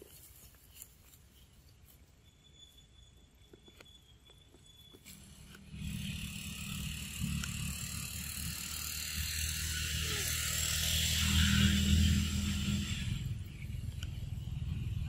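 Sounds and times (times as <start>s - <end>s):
vehicle approaching: 5.1s - 15.0s.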